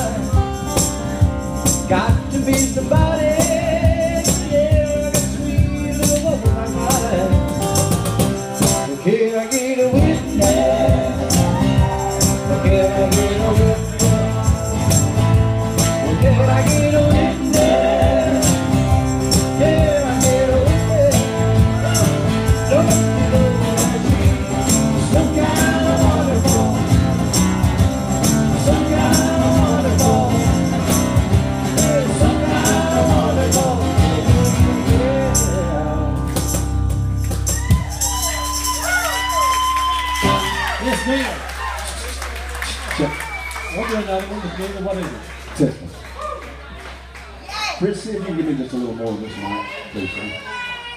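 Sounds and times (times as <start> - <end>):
hand percussion jingling: 0.0 - 39.6
live band playing: 0.0 - 44.6
person singing: 16.0 - 27.2, 28.6 - 30.9, 31.7 - 36.3.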